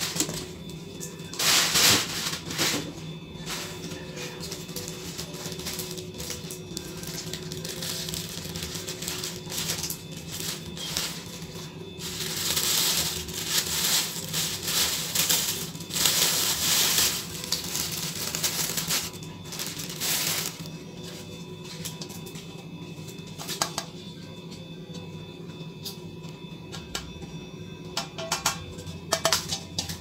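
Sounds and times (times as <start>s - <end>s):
plastic wrap and paper crinkling: 0.0s - 22.4s
faint background music: 0.0s - 30.0s.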